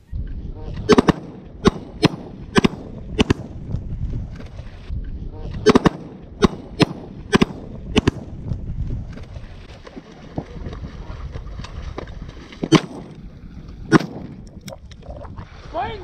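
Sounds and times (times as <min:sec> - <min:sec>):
wind noise on microphone: 0:00.0 - 0:16.0
shotgun blasts: 0:00.8 - 0:03.8, 0:05.6 - 0:08.6, 0:12.6 - 0:13.3, 0:13.9 - 0:14.4.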